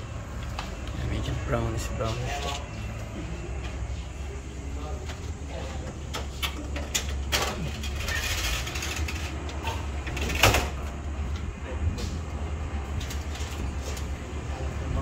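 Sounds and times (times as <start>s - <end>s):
construction knocks and clatter: 5.1s - 12.2s.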